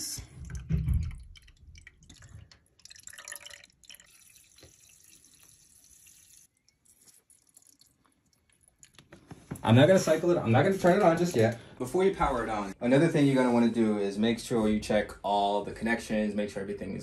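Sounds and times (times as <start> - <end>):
liquid dripping and trickling: 0.0 - 9.3.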